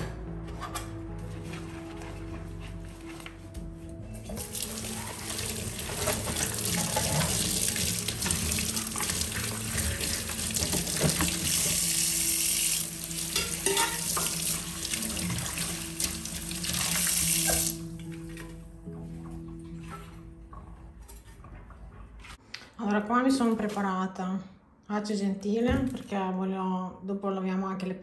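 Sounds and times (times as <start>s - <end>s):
water running from tap into sink: 4.3s - 17.9s.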